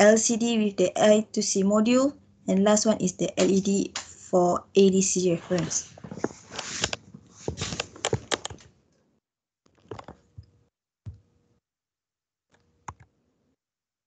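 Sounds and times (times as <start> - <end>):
computer keyboard typing: 7.7 - 8.7.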